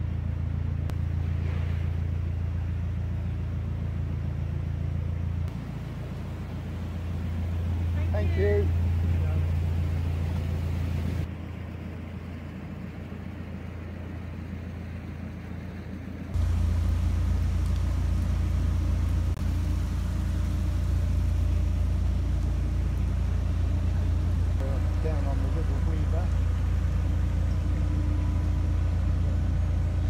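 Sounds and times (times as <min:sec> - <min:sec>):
diesel engine humming: 0:00.0 - 0:30.0.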